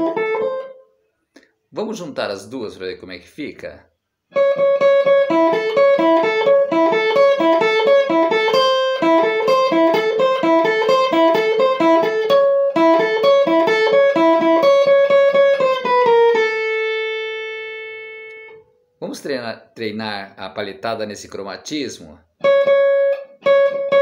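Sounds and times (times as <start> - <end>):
electric guitar fast picking: 4.4 - 17.1.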